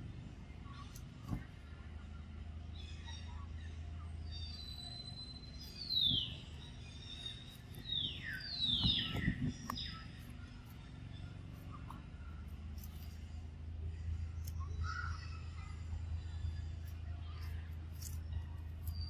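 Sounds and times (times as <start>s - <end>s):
bird whistling: 4.4s - 10.0s.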